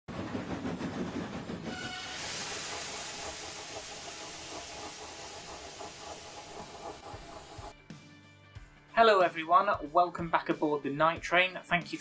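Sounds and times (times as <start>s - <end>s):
steam locomotive chuffing: 0.1s - 7.7s
loud hiss of steam: 1.7s - 7.7s.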